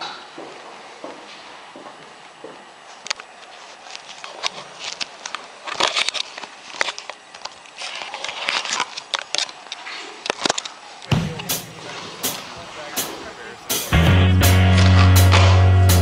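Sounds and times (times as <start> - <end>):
rustling scrapes: 3.4 - 11.0, 11.6 - 13.7.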